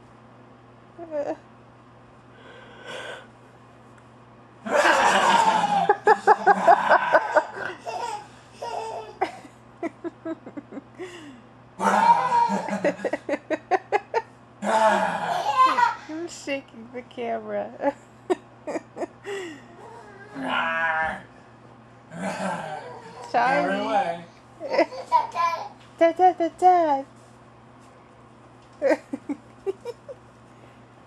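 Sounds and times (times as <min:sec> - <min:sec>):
person laughing heartily: 0:04.7 - 0:08.1, 0:09.2 - 0:15.8, 0:18.3 - 0:19.7, 0:28.8 - 0:30.2.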